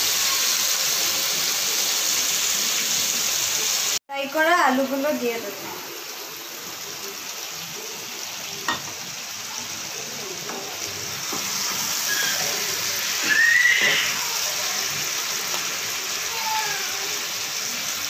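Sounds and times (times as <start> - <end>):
food sizzling in hot oil: 0.0 - 18.0
short high squeak: 12.0 - 12.6.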